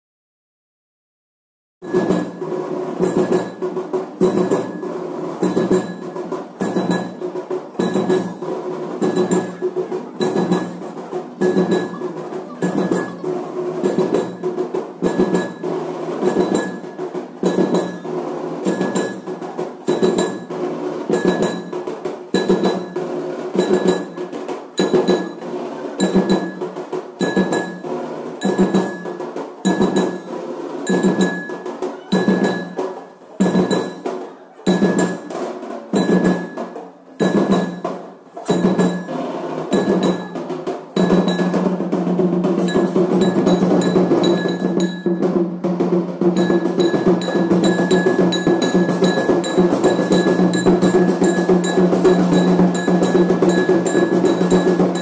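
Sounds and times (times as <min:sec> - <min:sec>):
drums beating with ringing tone: 0:01.8 - 0:55.0.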